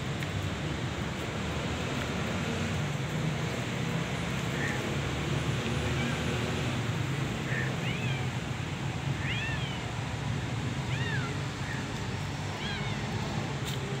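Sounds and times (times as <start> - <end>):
kitten meowing: 10.8 - 11.9, 12.5 - 13.3.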